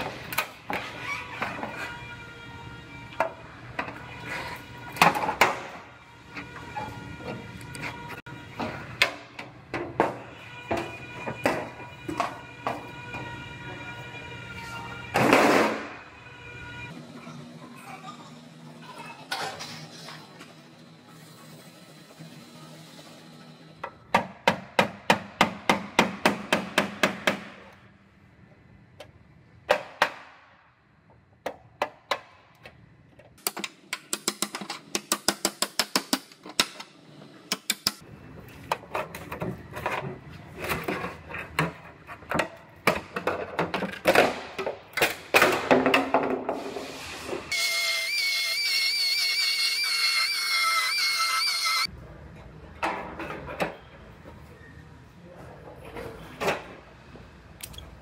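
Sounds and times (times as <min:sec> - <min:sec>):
hammer striking chisel on sheet metal: 0:24.1 - 0:27.7, 0:33.5 - 0:36.8.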